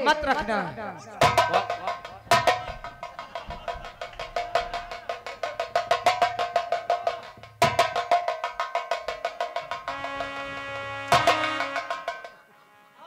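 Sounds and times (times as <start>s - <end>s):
fast drum roll: 1.2s - 12.5s
held keyboard chord: 9.9s - 13.0s.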